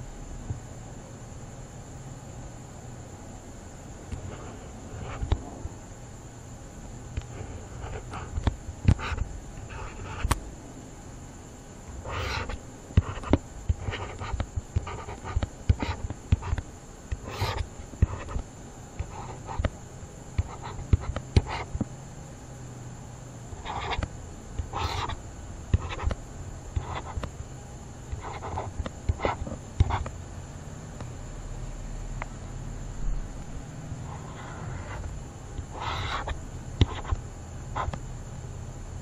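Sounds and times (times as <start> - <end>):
low steady hum: 0.0 - 39.0
stylus tapping on tablet: 12.4 - 18.4, 19.0 - 19.8, 20.4 - 21.9, 23.8 - 26.2, 36.8 - 37.2.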